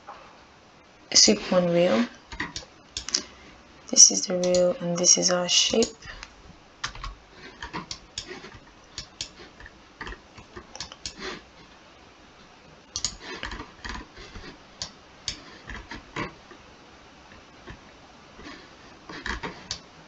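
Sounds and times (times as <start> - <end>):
computer mouse clicking: 2.3 - 3.3, 4.4 - 4.7, 5.6 - 11.4, 12.9 - 16.3, 18.4 - 19.9
scroll wheel ticking: 4.4 - 11.4, 13.0 - 16.3.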